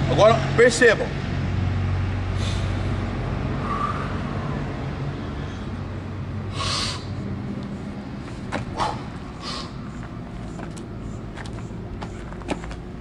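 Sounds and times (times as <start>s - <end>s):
forceful exhale: 2.4s - 3.0s, 3.6s - 4.4s, 6.5s - 7.2s, 8.8s - 9.8s.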